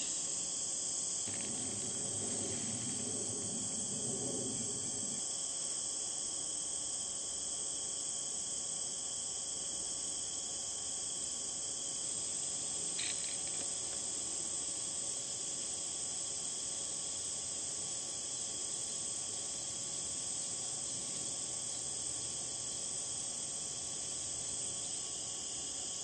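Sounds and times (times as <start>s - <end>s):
crickets trilling: 0.0s - 26.0s
low rumble: 1.3s - 5.2s.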